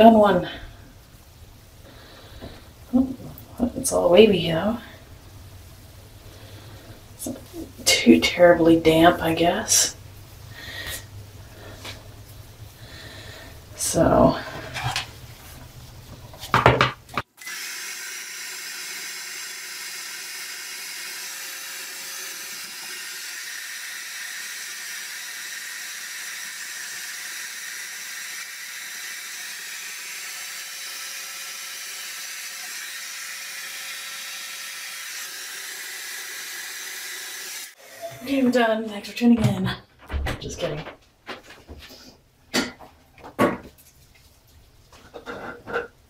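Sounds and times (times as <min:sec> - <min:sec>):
hair dryer running: 0:17.4 - 0:38.3.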